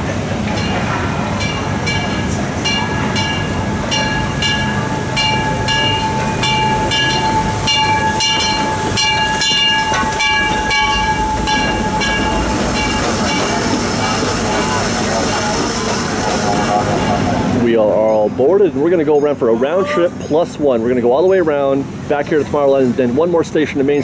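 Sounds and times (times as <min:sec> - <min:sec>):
locomotive bell ringing: 0:00.0 - 0:22.1
steam train rumbling: 0:00.0 - 0:24.0
steady squealing tone: 0:01.4 - 0:15.5.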